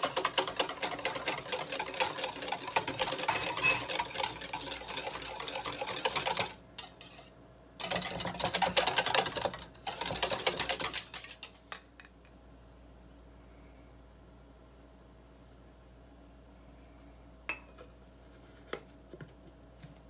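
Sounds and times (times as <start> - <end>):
wire whisk clicking in metal bowl: 0.0 - 6.6.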